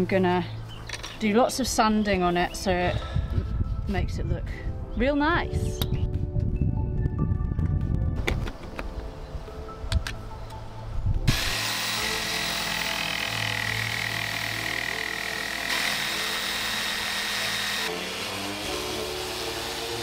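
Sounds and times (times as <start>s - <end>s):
electric sander on wood: 11.3s - 20.0s.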